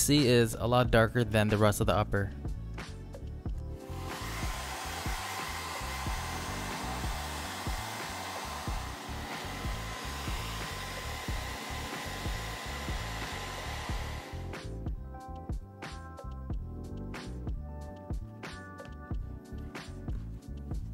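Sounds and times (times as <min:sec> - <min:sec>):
background music with steady beat: 0:00.0 - 0:20.9
blow dryer whining: 0:03.8 - 0:14.7.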